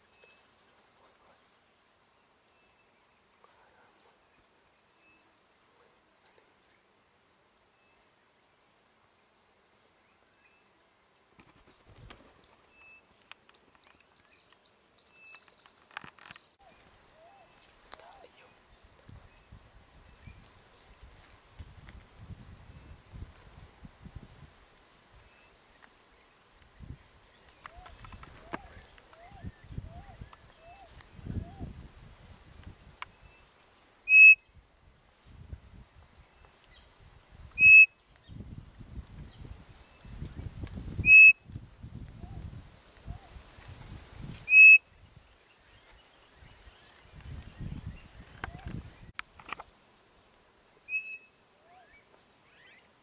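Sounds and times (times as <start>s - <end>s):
light clicks and rustles: 13.2s - 16.9s, 27.4s - 29.3s, 48.2s - 49.8s
wooden quail call whistle: 34.1s - 34.4s, 37.6s - 38.0s, 41.0s - 41.4s, 44.5s - 44.8s, 50.9s - 51.8s.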